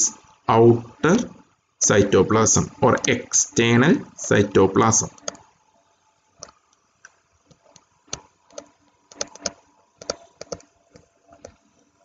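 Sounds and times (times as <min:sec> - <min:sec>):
stylus tapping on screen: 0:07.4 - 0:11.6.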